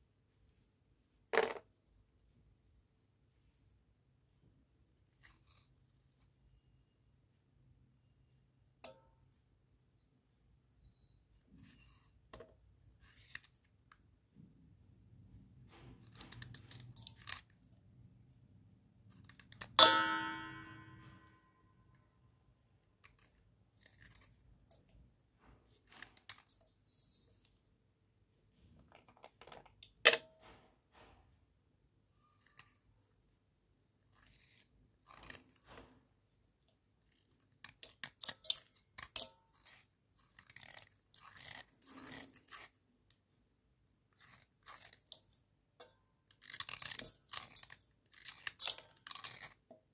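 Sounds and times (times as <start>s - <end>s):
pieces clinking in steel bowl: 19.8s - 21.0s
slate pencils snapping and crunching: 46.3s - 49.7s.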